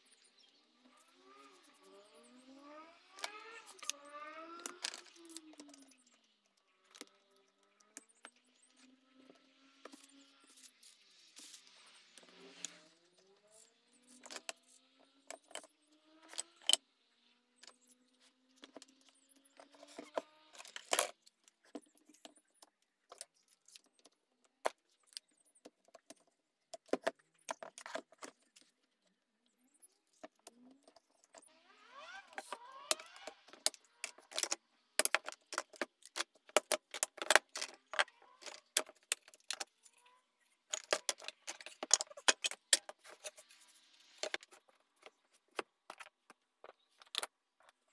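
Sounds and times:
squeaks of sliding parts: 0:17.7 - 0:22.5
metallic clamp clicks and rattles: 0:32.4 - 0:39.8, 0:40.7 - 0:43.4.

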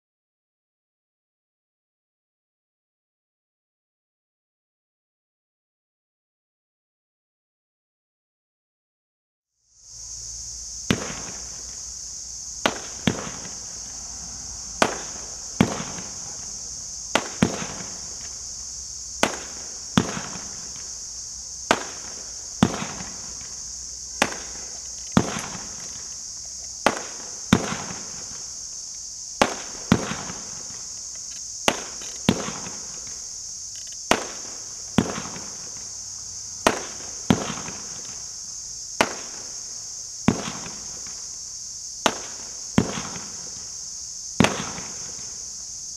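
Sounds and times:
fireworks reports: 0:12.6 - 0:13.9, 0:14.8 - 0:18.4, 0:21.6 - 0:28.7.

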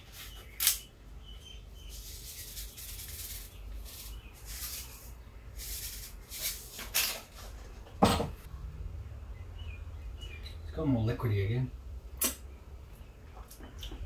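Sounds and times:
salt rattling in a shaker: 0:01.9 - 0:07.0.

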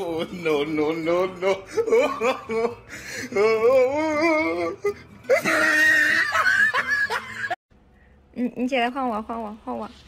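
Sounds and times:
person laughing: 0:01.4 - 0:03.7, 0:04.8 - 0:07.6.

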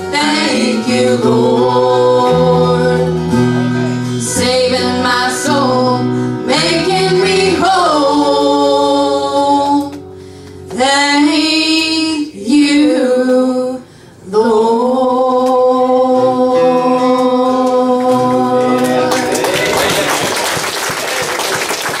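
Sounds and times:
voices singing gospel song: 0:00.0 - 0:10.0, 0:10.8 - 0:20.0
bass guitar: 0:00.0 - 0:13.6, 0:14.2 - 0:20.5
audience applause: 0:18.5 - 0:22.0.

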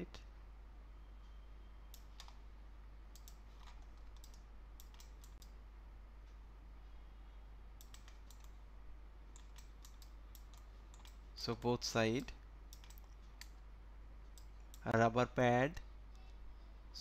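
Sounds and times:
faint low hum: 0:00.0 - 0:17.0
computer clicks: 0:01.9 - 0:02.4, 0:03.1 - 0:05.6, 0:07.8 - 0:08.6, 0:09.3 - 0:11.8, 0:12.7 - 0:13.6.

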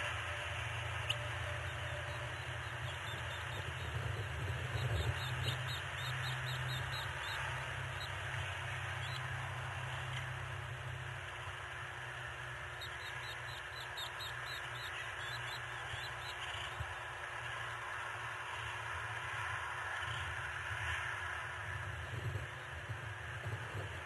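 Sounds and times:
microphone hum and hiss: 0:00.0 - 0:13.0, 0:20.0 - 0:24.0
rapid high bird calls: 0:12.7 - 0:16.8.

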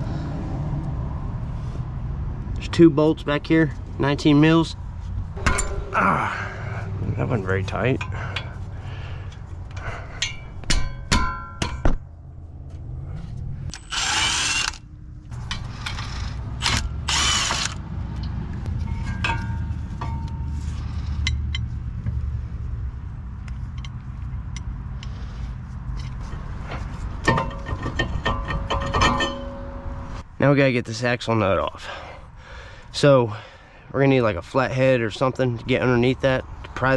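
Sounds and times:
metal tools clinking: 0:05.4 - 0:06.4, 0:18.8 - 0:20.6, 0:26.0 - 0:30.0.

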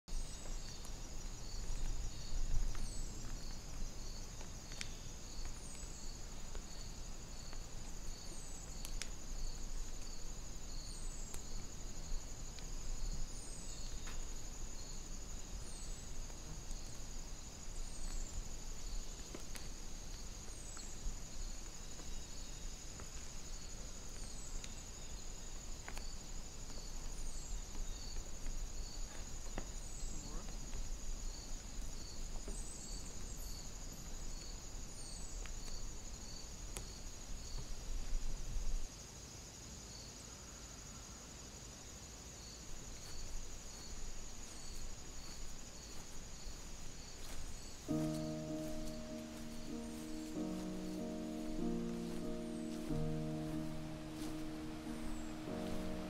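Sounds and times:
insects trilling: 0:00.1 - 0:56.0
faint ticks: 0:01.6 - 0:08.0, 0:08.7 - 0:10.2
high falling chirp: 0:47.8 - 0:56.0.

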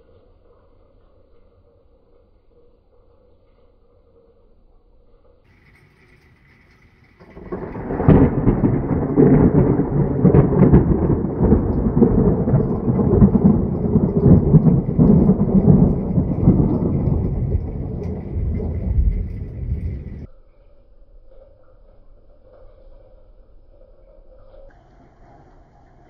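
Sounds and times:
thunder rumbling: 0:05.5 - 0:20.3
thunder cracks: 0:07.2 - 0:20.3.

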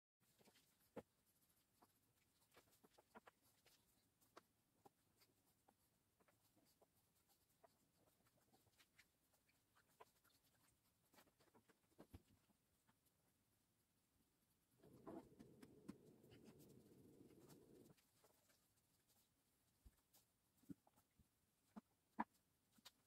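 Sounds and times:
pen scratching and tapping on paper: 0:14.8 - 0:18.6.

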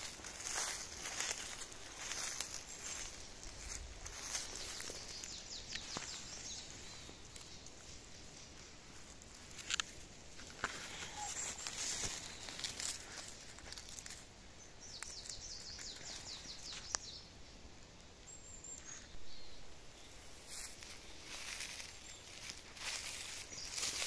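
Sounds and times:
footsteps in undergrowth: 0:00.0 - 0:17.2, 0:20.0 - 0:24.0
rustling grass and leaf litter: 0:00.0 - 0:24.0
twigs snapping clicks: 0:00.1 - 0:06.3, 0:08.5 - 0:14.2, 0:14.9 - 0:17.1.

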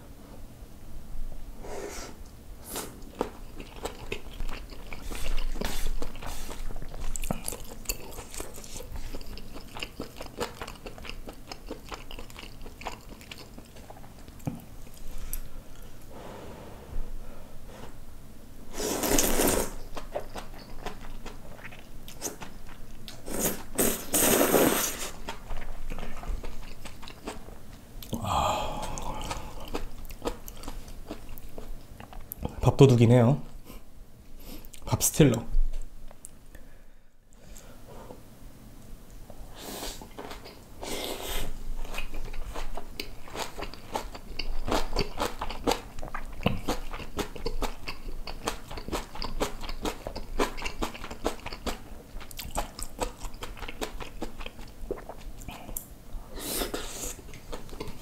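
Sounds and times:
chewing with wet mouth smacks: 0:03.0 - 0:15.5, 0:19.8 - 0:23.2, 0:25.2 - 0:28.2, 0:28.9 - 0:32.5, 0:41.8 - 0:55.9, 0:57.3 - 0:58.0
sucking in air: 0:28.1 - 0:29.6.

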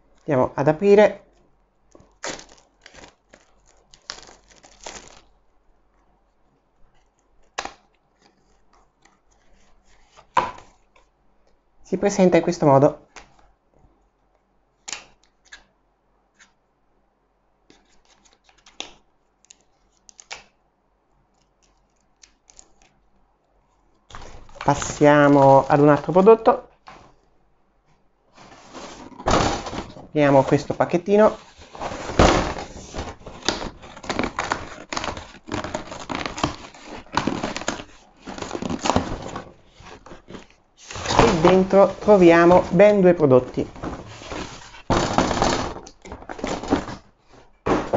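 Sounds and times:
hands handling cardboard box: 0:28.3 - 0:47.9.

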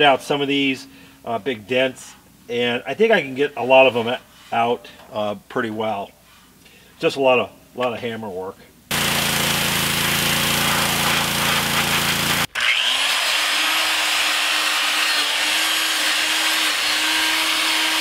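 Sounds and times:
pressure washer spray on steel: 0:08.9 - 0:12.5
pressure washer motor hum: 0:08.9 - 0:12.9
angle grinder grinding metal: 0:08.9 - 0:18.0.

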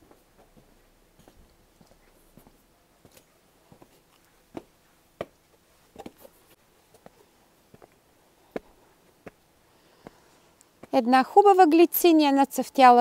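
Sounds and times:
faint footsteps: 0:00.0 - 0:11.1.

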